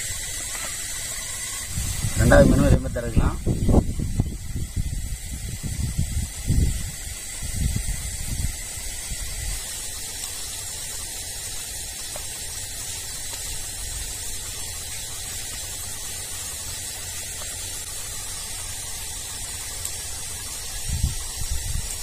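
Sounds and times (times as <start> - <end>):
steady hiss: 0.0 - 22.0
wind rumble on microphone: 1.6 - 9.6, 20.6 - 22.0.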